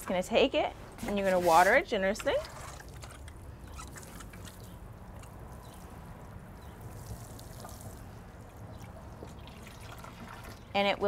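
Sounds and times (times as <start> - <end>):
water pouring onto soil: 3.9 - 11.0.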